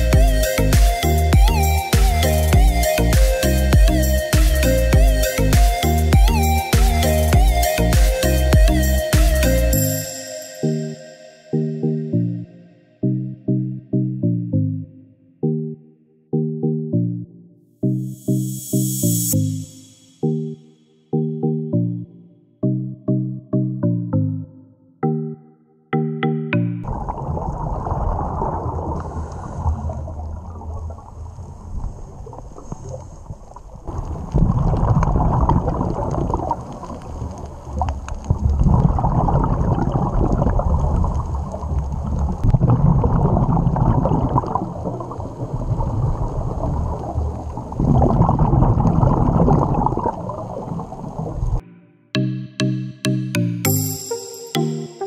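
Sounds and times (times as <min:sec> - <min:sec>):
underwater water rush: 0:26.8 - 0:51.6
bubbling exhalations: 0:38.4 - 0:41.2, 0:47.7 - 0:51.0.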